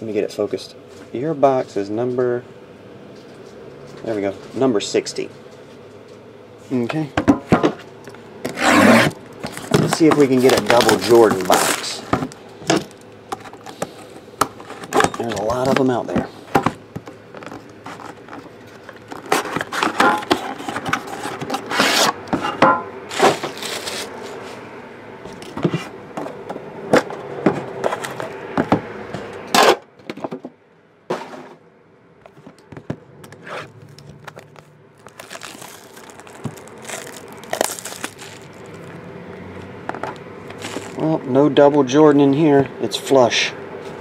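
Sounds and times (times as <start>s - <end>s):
plastic wrap crinkling: 8.9s - 13.8s, 33.6s - 39.0s, 40.5s - 41.1s.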